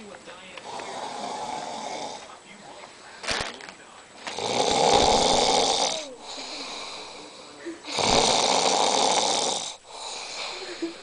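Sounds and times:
person snoring: 0:00.6 - 0:02.3, 0:04.3 - 0:11.0.

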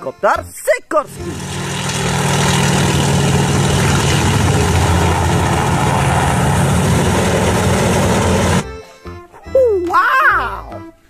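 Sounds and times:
helicopter engine and rotor drone: 0:01.1 - 0:08.7.

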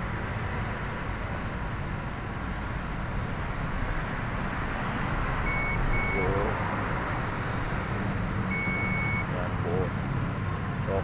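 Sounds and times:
multimeter beeps: 0:05.4 - 0:06.4, 0:08.5 - 0:09.4.

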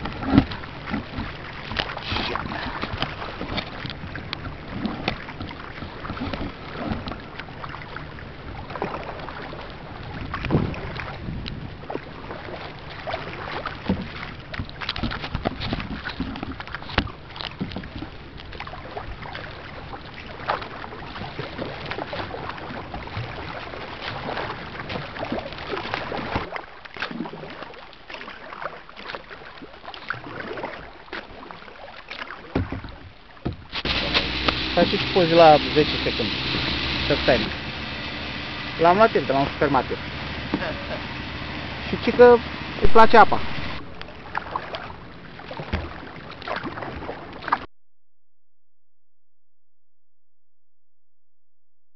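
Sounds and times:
wind rumble on microphone: 0:00.0 - 0:26.3
water splashing and lapping: 0:00.0 - 0:47.7
knocks against a boat: 0:10.5 - 0:10.8, 0:13.8 - 0:18.1, 0:32.5 - 0:34.7, 0:45.6 - 0:46.0.

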